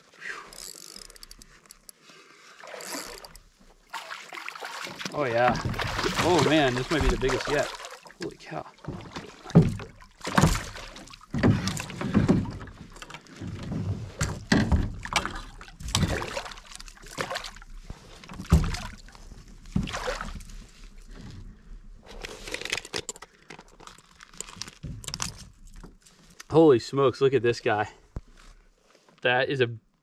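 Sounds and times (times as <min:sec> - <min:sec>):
fish splashing at surface: 0:03.9 - 0:08.2.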